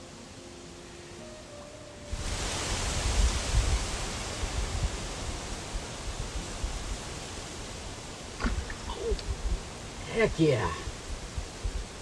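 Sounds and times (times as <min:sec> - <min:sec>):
water splashing and churning: 0:08.3 - 0:09.2.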